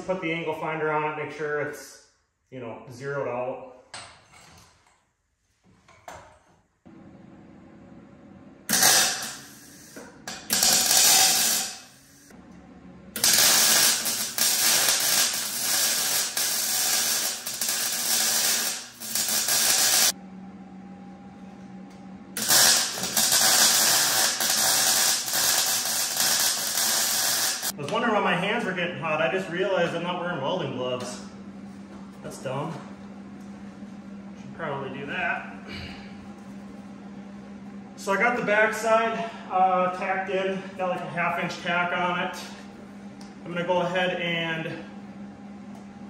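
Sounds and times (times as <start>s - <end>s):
low steady hum: 6.9s - 46.0s
electric arc welding: 8.7s - 12.3s, 13.2s - 20.2s, 22.4s - 27.8s.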